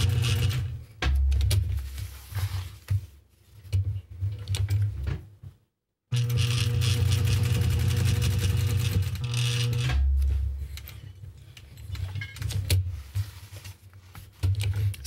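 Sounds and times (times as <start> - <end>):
sewing machine stitching: 0.0 - 0.7, 6.1 - 10.1.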